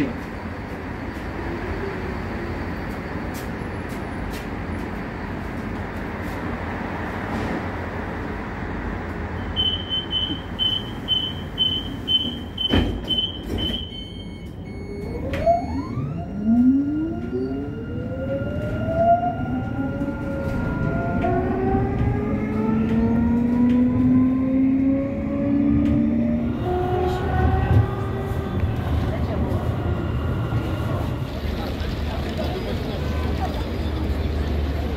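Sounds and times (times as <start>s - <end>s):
tram wheels rumbling: 0.0s - 14.0s, 16.4s - 34.9s
rapid high door warning beeps: 9.4s - 17.6s.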